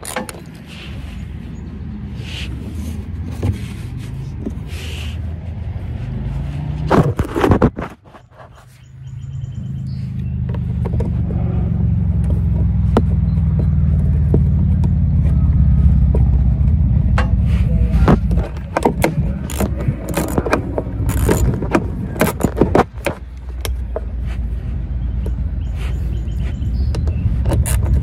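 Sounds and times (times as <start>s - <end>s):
low steady rumble: 9.0s - 28.0s
plastic liner clicking and rattling: 18.1s - 24.1s.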